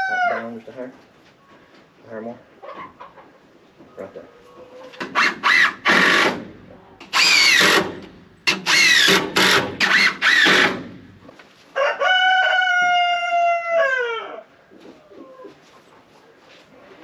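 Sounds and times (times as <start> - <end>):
rooster crowing: 0.0 - 0.6, 11.7 - 14.5
cordless drill driving screws: 5.0 - 6.4, 7.0 - 11.0.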